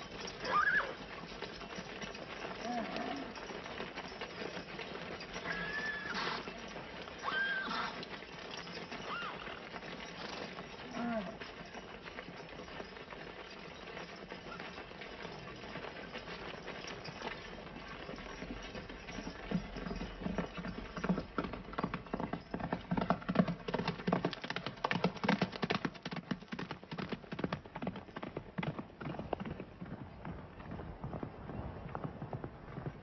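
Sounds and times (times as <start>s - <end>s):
horses' hoofbeats clattering: 0.0s - 33.0s.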